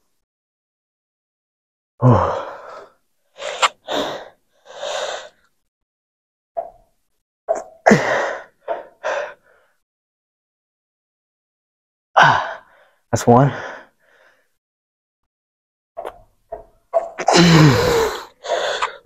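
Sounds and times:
short sharp breaths: 2.6 - 5.4, 17.4 - 19.0
man grunting with effort: 17.2 - 19.0.

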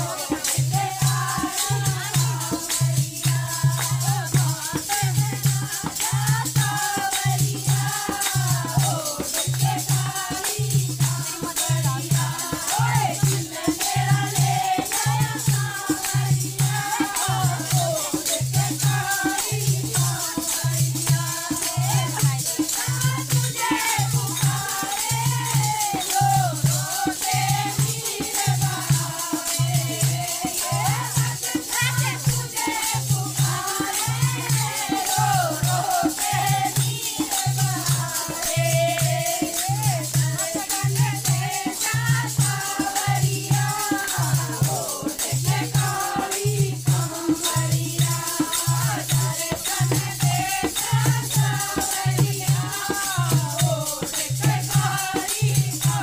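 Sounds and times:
hand-clapping: 0.0 - 43.0.

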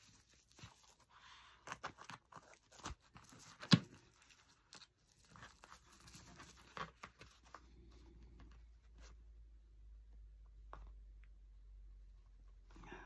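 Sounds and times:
vinyl pouch crinkling: 0.0 - 9.1.

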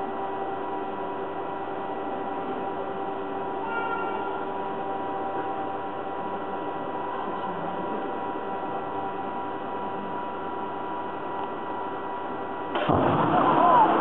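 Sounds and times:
mechanical hum and hiss: 0.0 - 14.0.

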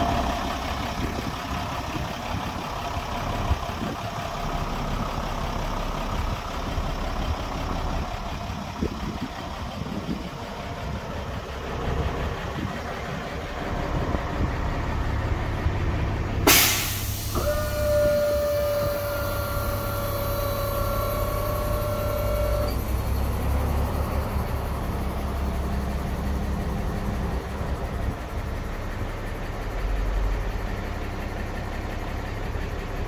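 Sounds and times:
diesel engine idling: 0.0 - 33.0
burst of hissing air: 16.5 - 17.6.

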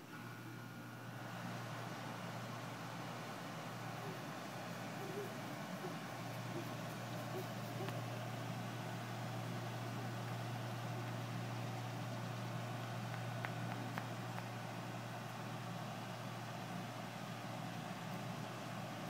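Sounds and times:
low mechanical hum: 0.0 - 19.0
faint clicks: 6.9 - 8.0.

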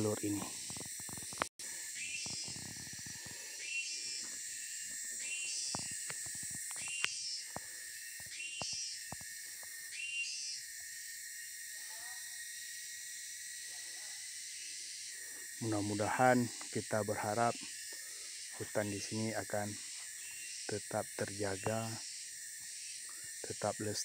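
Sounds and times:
insect chorus hissing: 0.0 - 24.0.

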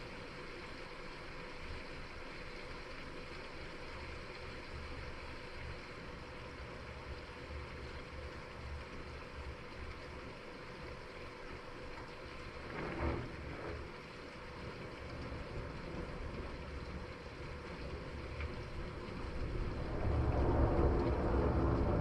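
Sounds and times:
rain hissing: 12.4 - 22.0
low thunder rumble: 17.7 - 22.0.

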